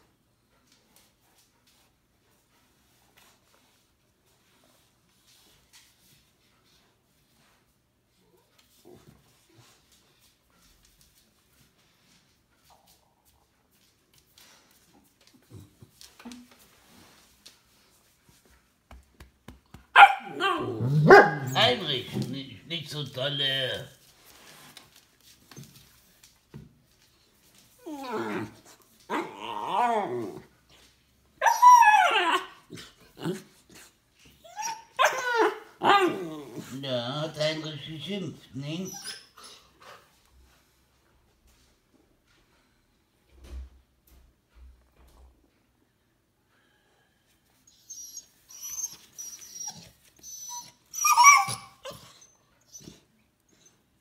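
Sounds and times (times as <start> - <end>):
puppy whining: 20.0 - 21.8, 27.8 - 30.6, 31.4 - 36.8, 38.8 - 40.0, 47.6 - 54.0
puppy grumbling howls: 27.8 - 30.4
puppy whimpering: 27.8 - 30.4, 31.4 - 33.4, 34.4 - 36.7, 38.8 - 39.7, 47.8 - 53.0.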